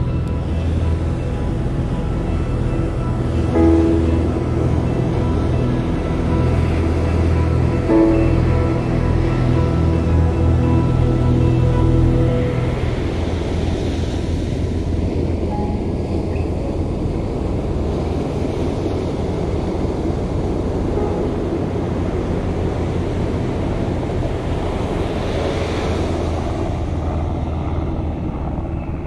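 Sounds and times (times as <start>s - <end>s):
wind rumbling on microphone: 0.0s - 29.0s
ocean surf washing on beach: 12.1s - 29.0s.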